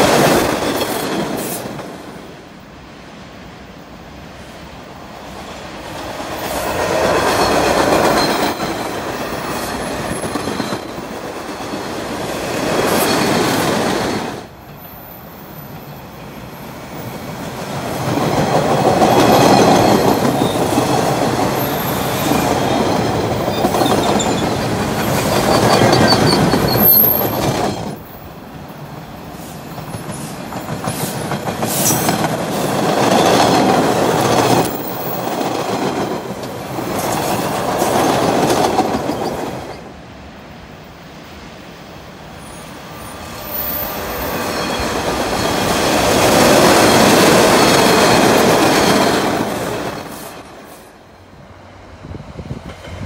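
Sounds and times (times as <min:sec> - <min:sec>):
train wheels clacking over rail joints: 0:06.0 - 0:14.2, 0:17.7 - 0:28.0, 0:29.5 - 0:39.9
faint high wheel squeal: 0:07.3 - 0:09.0, 0:21.6 - 0:27.8, 0:42.4 - 0:45.8.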